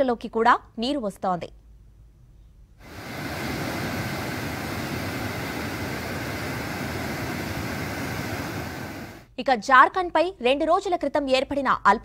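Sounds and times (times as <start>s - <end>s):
water rushing through spillway: 2.8s - 9.3s.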